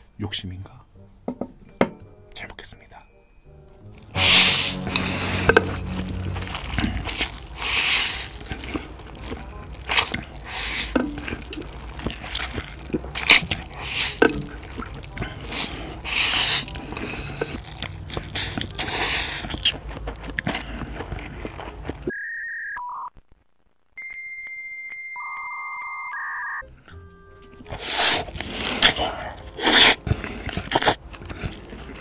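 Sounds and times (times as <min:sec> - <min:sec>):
slurping and chewing noodles: 0:03.8 - 0:22.1, 0:27.4 - 0:32.0
electronic beeps: 0:24.0 - 0:26.7.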